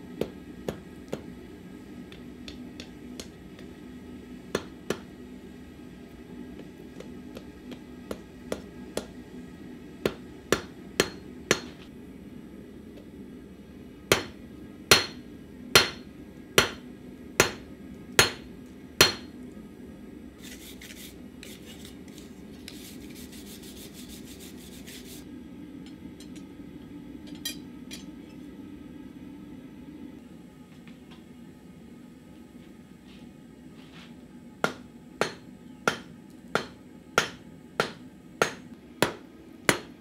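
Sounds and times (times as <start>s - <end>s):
hammer striking metal on anvil: 4.5s - 5.1s, 10.0s - 11.8s, 14.1s - 15.2s, 15.8s - 16.8s, 17.4s - 17.6s, 18.2s - 19.3s, 34.6s - 40.0s.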